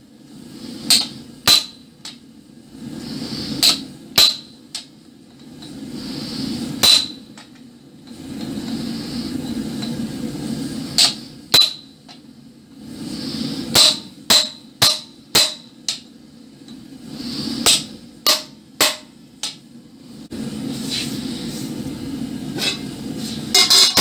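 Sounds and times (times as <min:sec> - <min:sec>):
hammer striking chisel on metal: 0:00.9 - 0:01.8, 0:03.6 - 0:04.9, 0:06.8 - 0:07.5, 0:11.0 - 0:11.9, 0:13.8 - 0:16.0, 0:17.6 - 0:19.6, 0:23.5 - 0:24.0.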